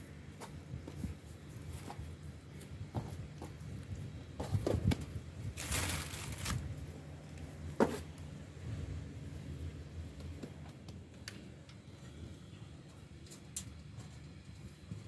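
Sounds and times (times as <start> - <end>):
low steady hum: 0.0 - 15.0
dough rustling: 0.3 - 8.2.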